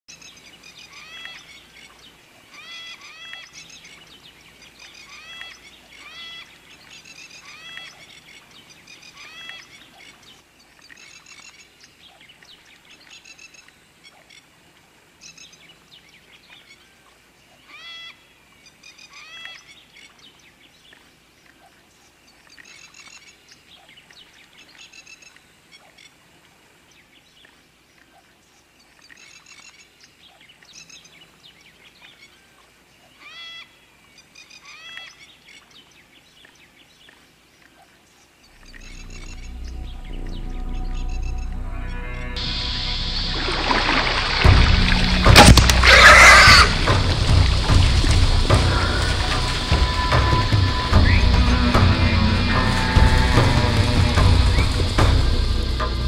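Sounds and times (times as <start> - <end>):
bird chirps: 38.4 - 43.0.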